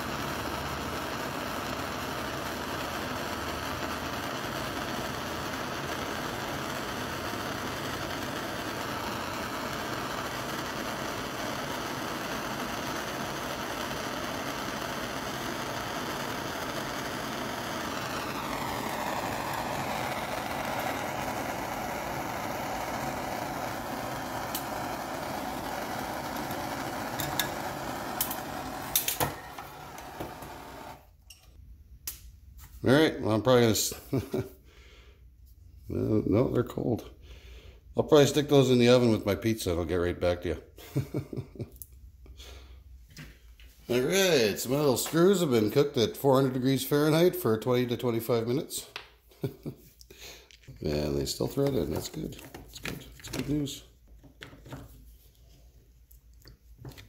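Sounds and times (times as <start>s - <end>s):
gas torch flame hissing: 0.0s - 31.2s, 43.8s - 53.9s.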